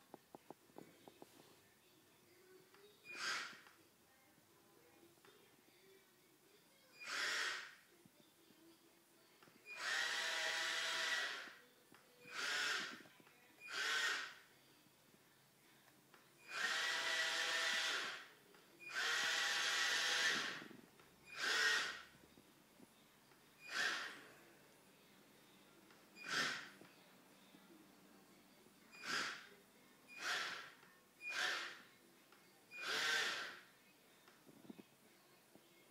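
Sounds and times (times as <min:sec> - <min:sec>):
small electric motors whirring: 0:03.1 - 0:03.6, 0:07.0 - 0:07.8, 0:09.7 - 0:11.6, 0:12.2 - 0:13.0, 0:13.7 - 0:14.4, 0:16.5 - 0:18.3, 0:18.9 - 0:20.6, 0:21.3 - 0:22.1, 0:23.6 - 0:24.2, 0:26.2 - 0:26.8, 0:29.0 - 0:29.5, 0:30.2 - 0:31.9, 0:32.8 - 0:33.6.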